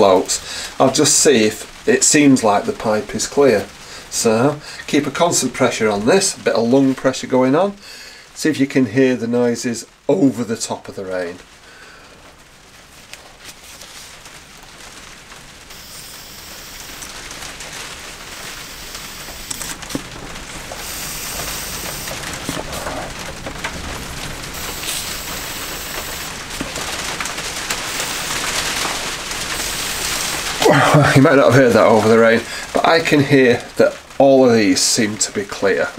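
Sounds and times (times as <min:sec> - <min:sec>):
steady rain: 0:00.0 - 0:35.9
faint hiss of blown air: 0:15.7 - 0:17.3, 0:18.2 - 0:19.7, 0:20.6 - 0:23.2, 0:24.5 - 0:26.4, 0:27.6 - 0:31.2.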